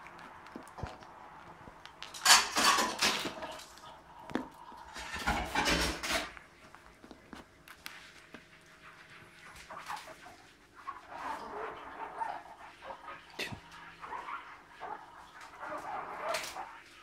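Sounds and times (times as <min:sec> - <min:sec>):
dog crunching and chewing fruit: 0:00.0 - 0:10.5.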